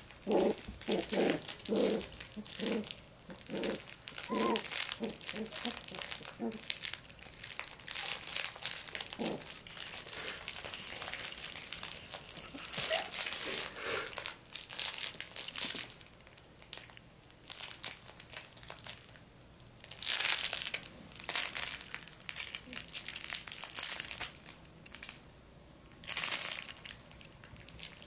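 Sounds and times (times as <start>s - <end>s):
puppies rustling blankets: 0.0s - 19.2s
puppy squeaks: 4.2s - 6.0s, 12.6s - 13.3s.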